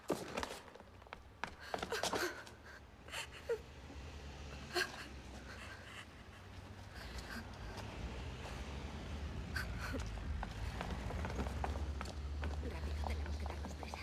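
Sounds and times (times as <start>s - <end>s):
woman crying softly: 1.6s - 3.6s.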